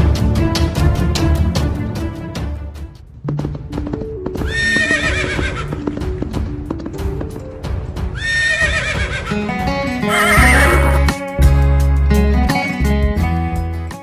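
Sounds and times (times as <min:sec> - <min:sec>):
music: 0:00.0 - 0:14.0
hoofbeats clip-clopping: 0:03.0 - 0:09.4, 0:10.0 - 0:11.1
horse neighing: 0:04.5 - 0:05.7, 0:08.2 - 0:09.4, 0:10.0 - 0:11.2.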